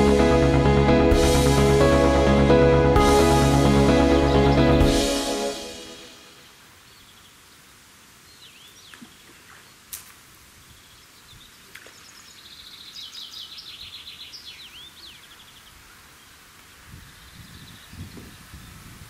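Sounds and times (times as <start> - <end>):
songbirds singing: 6.4 - 9.9, 10.6 - 19.0.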